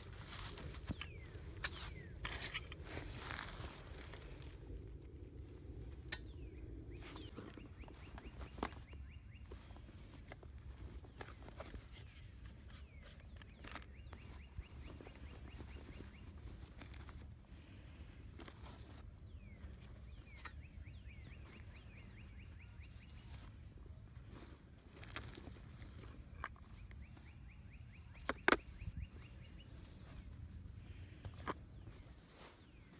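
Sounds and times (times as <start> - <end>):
steady low rumble: 0.0 - 11.1
songbird singing: 0.0 - 32.9.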